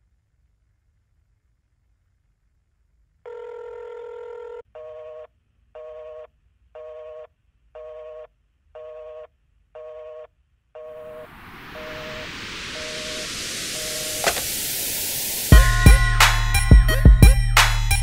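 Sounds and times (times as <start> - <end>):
steady telephone tone: 3.3 - 14.7
hiss of noise: 11.0 - 16.7.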